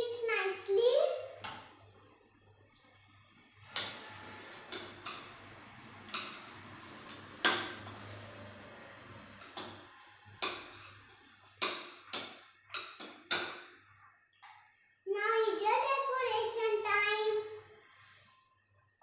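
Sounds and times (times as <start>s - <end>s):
wooden spoon knocking plastic bowl: 9.4s - 13.8s.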